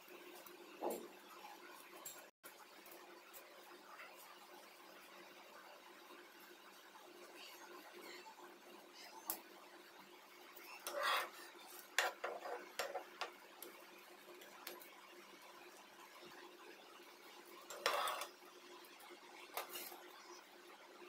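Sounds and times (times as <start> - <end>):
metal utensil scraping a pan: 10.6 - 13.4, 17.6 - 18.4.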